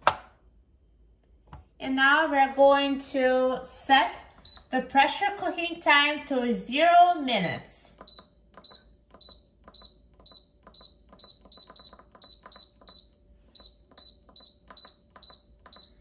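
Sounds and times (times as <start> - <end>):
control panel beeping: 4.4 - 4.8, 7.5 - 16.0.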